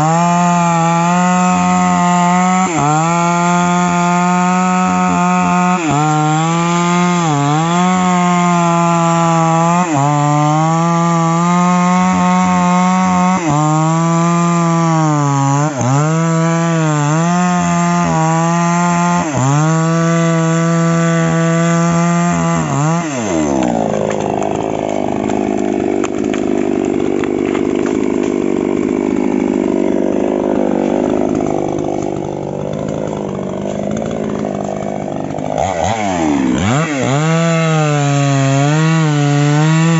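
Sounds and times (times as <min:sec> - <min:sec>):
chainsaw cutting wood: 0:00.0 - 0:39.9
chainsaw idling roughly: 0:10.5 - 0:39.9.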